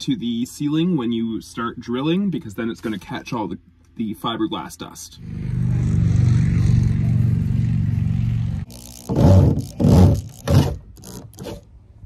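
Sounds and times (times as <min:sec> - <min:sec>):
steady low hum: 0:00.0 - 0:12.0
power drill boring: 0:08.7 - 0:11.6.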